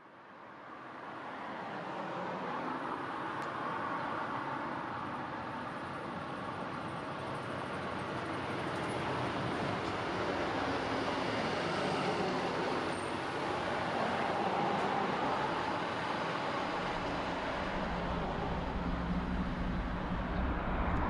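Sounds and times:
steady traffic noise: 0:00.0 - 0:21.0
bus driving past: 0:05.4 - 0:21.0.

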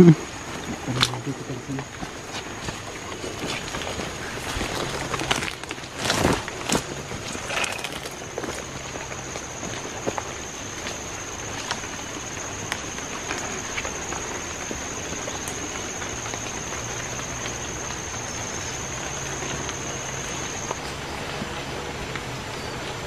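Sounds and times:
steady hiss: 0:00.0 - 0:23.0
footsteps on muddy trail: 0:00.4 - 0:23.0.

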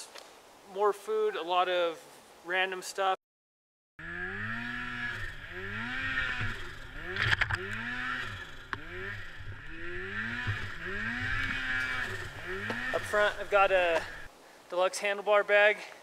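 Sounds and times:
snowmobile engine revving: 0:04.0 - 0:14.3
sharp knocks: 0:06.4 - 0:13.3.

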